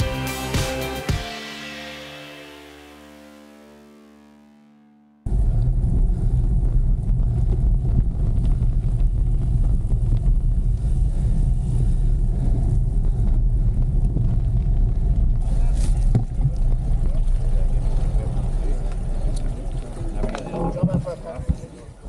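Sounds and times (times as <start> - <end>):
music: 0.0 - 5.3
wind buffeting microphone: 5.3 - 22.0.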